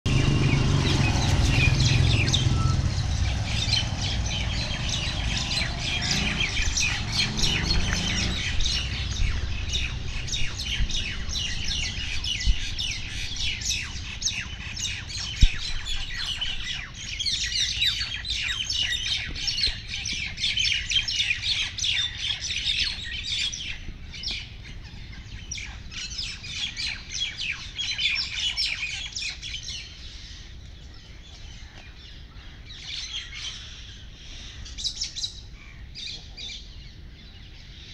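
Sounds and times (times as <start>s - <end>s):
low rumble: 0.1s - 16.8s
mynas squawking and chirping: 0.6s - 23.8s.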